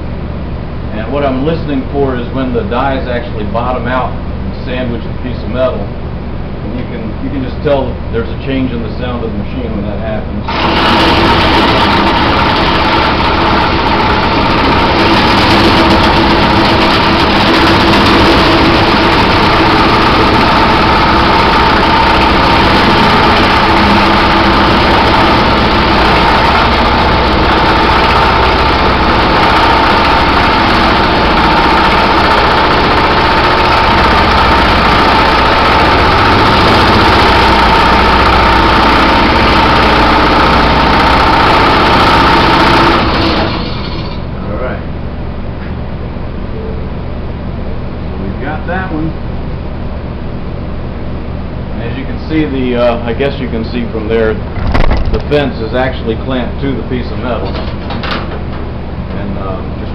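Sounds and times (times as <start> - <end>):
power hammer pounding sheet metal: 10.5 - 43.5.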